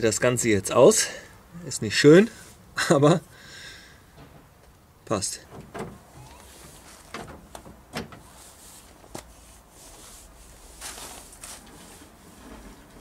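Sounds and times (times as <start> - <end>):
scraping rustle: 6.1 - 13.0
sharp clicks and knocks: 6.6 - 8.2.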